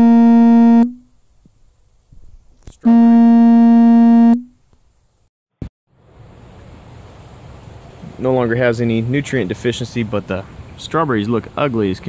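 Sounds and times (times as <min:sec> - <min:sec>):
electronic buzzer tone: 0:00.0 - 0:01.0, 0:02.8 - 0:04.5.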